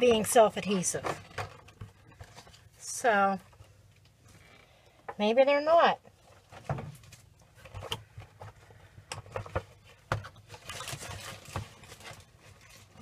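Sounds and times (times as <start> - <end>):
light rustling of packaging: 0.0 - 4.8, 6.0 - 13.0.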